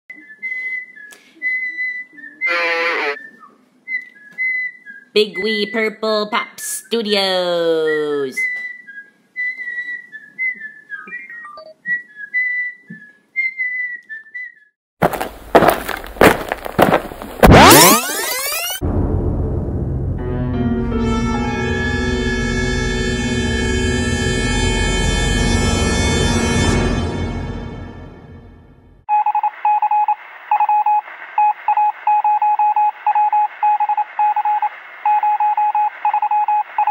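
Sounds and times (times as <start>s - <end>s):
person whistling a tune: 0.1s - 5.5s, 8.4s - 14.7s
electronic morse beeps: 17.4s - 18.8s, 29.1s - 36.9s
music: 18.9s - 29.0s.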